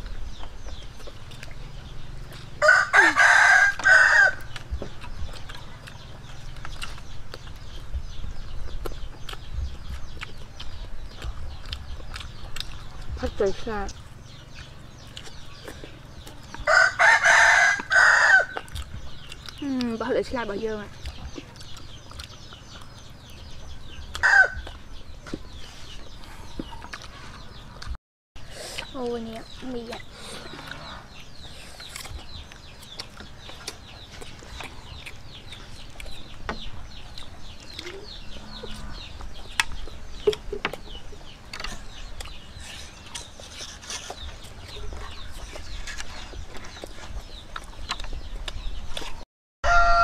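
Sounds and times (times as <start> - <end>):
people eating clicks and smacks: 0.0 - 49.2
chickens clucking: 0.0 - 50.0
rooster crowing: 2.6 - 4.5, 16.6 - 18.6, 24.2 - 24.6, 49.6 - 50.0
chicken squawk: 49.6 - 50.0.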